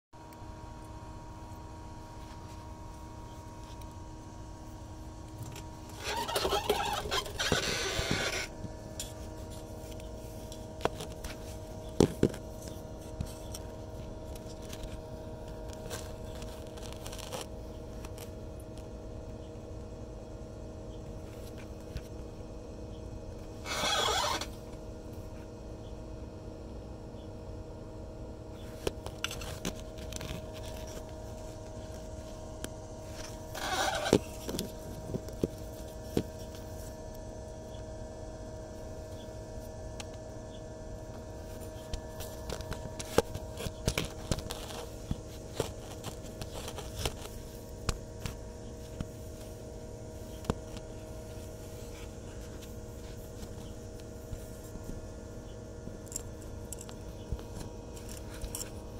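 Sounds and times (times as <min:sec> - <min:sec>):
steady low hum: 0:00.2 - 0:58.9
phone handling clicks and scrapes: 0:05.5 - 0:13.7, 0:28.8 - 0:32.1, 0:33.1 - 0:36.6, 0:41.7 - 0:49.5
brief squeak: 0:06.0 - 0:08.5.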